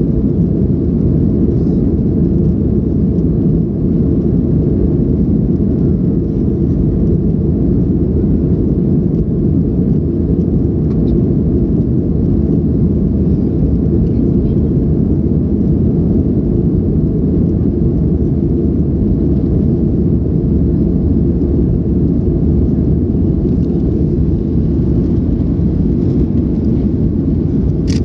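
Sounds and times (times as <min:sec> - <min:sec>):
jet engines inside cabin: 0:00.0 - 0:28.0
rushing airflow: 0:14.8 - 0:28.0.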